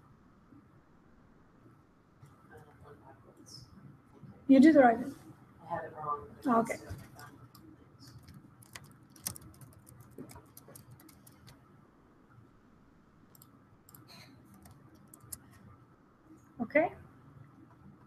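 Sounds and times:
computer keyboard typing: 0:07.0 - 0:11.6, 0:13.3 - 0:15.5.

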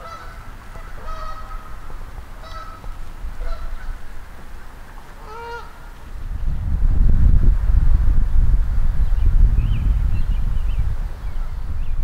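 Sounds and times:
distant geese honking: 0:00.0 - 0:06.0.

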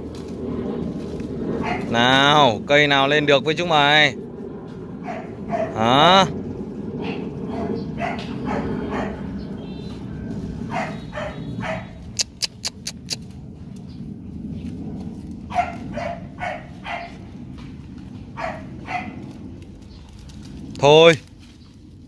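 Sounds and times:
sharp clicks: 0:12.2 - 0:13.2.

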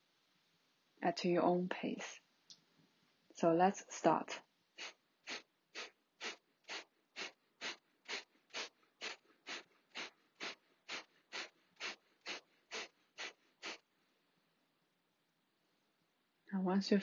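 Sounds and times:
forceful nasal exhalations: 0:04.8 - 0:13.9.

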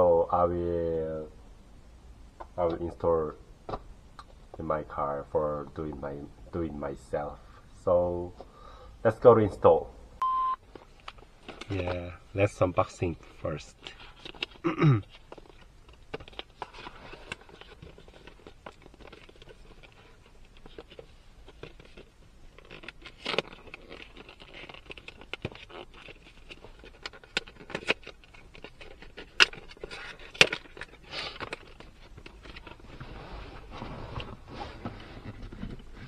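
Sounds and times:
packaging rustling and scraping: 0:10.6 - 0:36.0.

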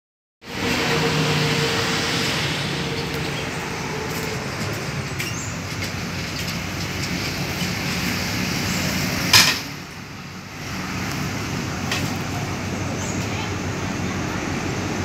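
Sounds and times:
distant diesel locomotive running: 0:00.4 - 0:15.0.

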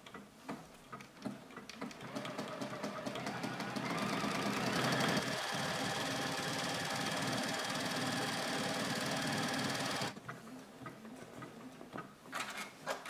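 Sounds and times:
sewing machine stitching: 0:01.8 - 0:10.2.

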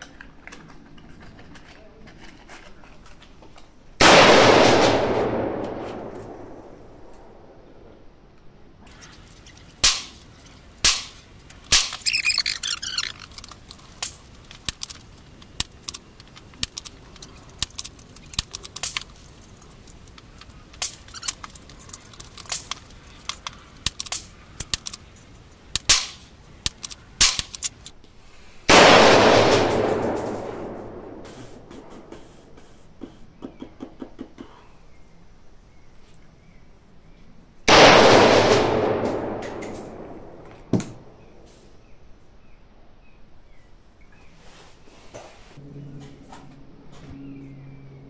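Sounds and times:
loud gunshots: 0:04.0 - 0:06.7, 0:28.7 - 0:31.2, 0:37.7 - 0:40.4
heavy ringing gunshot: 0:04.0 - 0:07.5, 0:28.7 - 0:31.2, 0:37.7 - 0:40.4.

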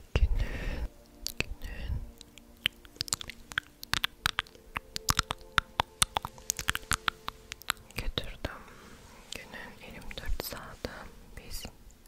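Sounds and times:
faint steady hum: 0:00.0 - 0:12.0
crisp plucking clicks and snaps: 0:01.0 - 0:08.6.

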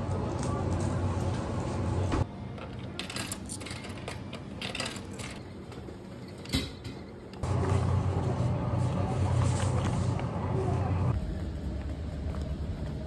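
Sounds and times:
coins dropping into slot: 0:02.7 - 0:05.4.

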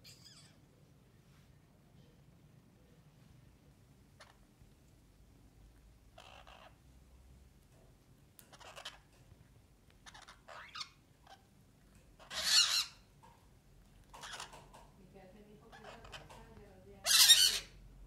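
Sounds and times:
parakeets squawking: 0:06.1 - 0:06.8, 0:08.5 - 0:09.1, 0:10.0 - 0:11.5, 0:12.2 - 0:13.1, 0:14.1 - 0:14.8, 0:15.6 - 0:17.8.

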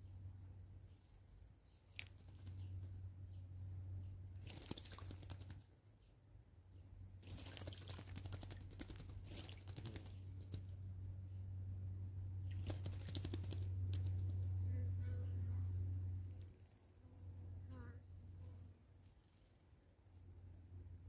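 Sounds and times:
steady low hum: 0:00.0 - 0:21.0
bird wings splashing water: 0:01.8 - 0:02.9, 0:04.4 - 0:05.8, 0:07.2 - 0:10.8, 0:12.4 - 0:14.5.

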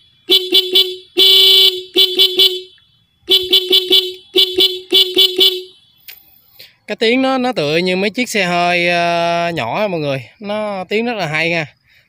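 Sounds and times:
motorcycle horn honking: 0:00.0 - 0:06.1.

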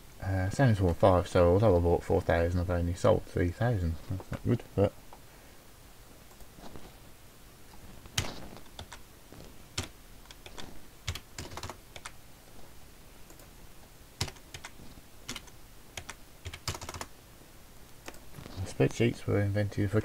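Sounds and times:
computer keyboard typing: 0:08.1 - 0:09.0, 0:09.8 - 0:12.2, 0:13.3 - 0:13.5, 0:14.2 - 0:17.1.

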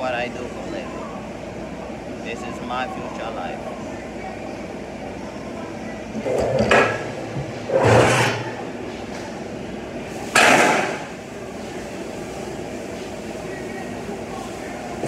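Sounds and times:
metal clanks on welding bench: 0:10.3 - 0:11.0.

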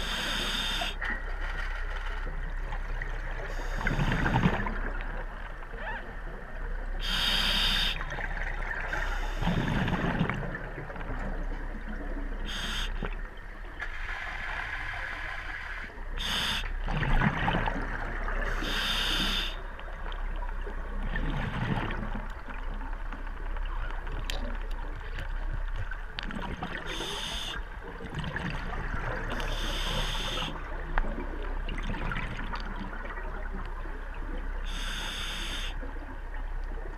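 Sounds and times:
regulator hissing inhalations: 0:07.0 - 0:08.0, 0:34.7 - 0:35.8.

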